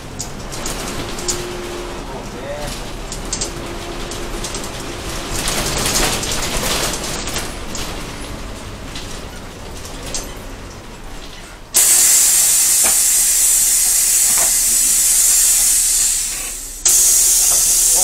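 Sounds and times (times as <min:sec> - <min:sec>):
loud steady hiss: 0:11.7 - 0:18.0.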